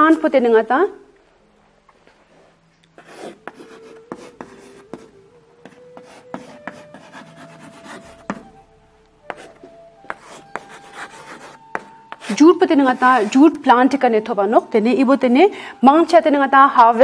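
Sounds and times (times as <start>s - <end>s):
chalk tapping and scraping on blackboard: 3.0s - 8.6s, 9.2s - 13.6s.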